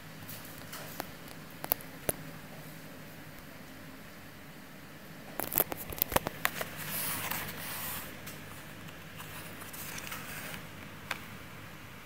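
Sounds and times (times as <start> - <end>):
plastic packaging rustling: 5.4 - 10.8.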